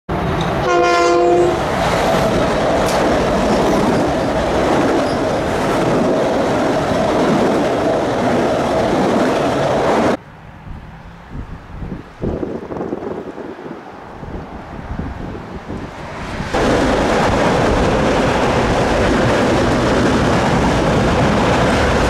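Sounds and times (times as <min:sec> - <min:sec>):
train passing: 0:00.1 - 0:22.0
train horn blast: 0:00.6 - 0:01.6.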